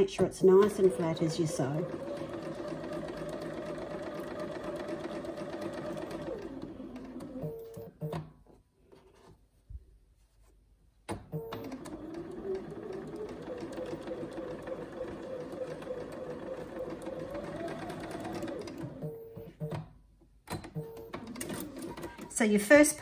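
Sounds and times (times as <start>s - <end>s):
electric sewing machine stitching: 0.0s - 8.0s, 11.3s - 19.6s, 20.6s - 22.6s.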